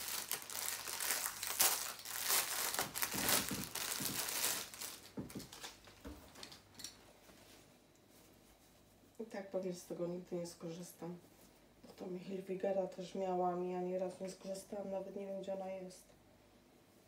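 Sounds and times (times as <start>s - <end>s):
plastic wrapping crinkling: 0.0s - 6.6s.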